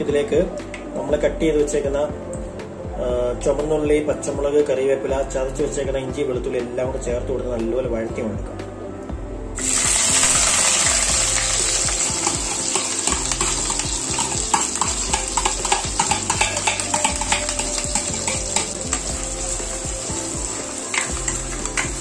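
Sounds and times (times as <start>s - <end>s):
food sizzling in hot oil: 9.6s - 22.0s.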